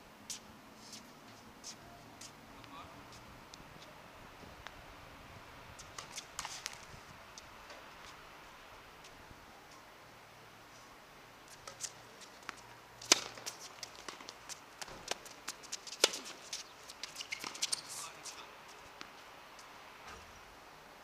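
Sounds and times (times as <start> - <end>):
tennis shoes scuffing on court: 0.3 - 3.3, 5.8 - 8.2, 11.5 - 19.1
racket hitting tennis ball: 5.8 - 6.9, 11.5 - 17.9.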